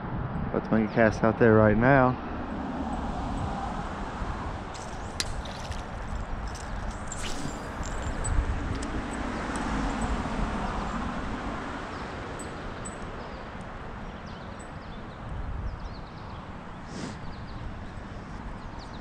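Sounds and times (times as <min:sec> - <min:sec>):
small birds chirping: 0:04.8 - 0:08.4.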